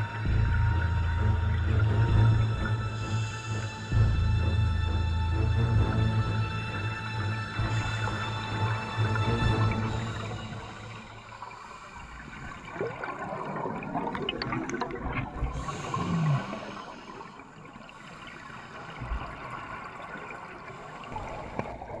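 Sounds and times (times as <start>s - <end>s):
bubbles rushing and crackling: 9.2s - 17.9s
diver breathing through regulator: 15.5s - 19.4s.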